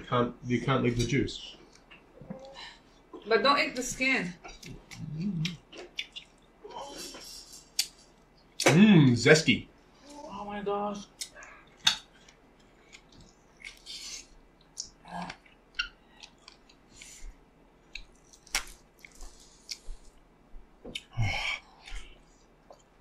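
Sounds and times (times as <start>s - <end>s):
people chewing lemons: 4.4s - 8.7s, 11.0s - 23.0s.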